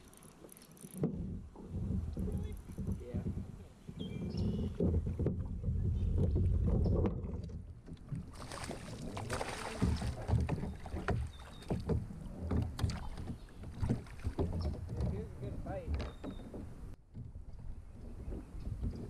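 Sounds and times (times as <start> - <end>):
fish splashing at surface: 8.3 - 11.6
knocks against plastic hull: 8.6 - 17.4.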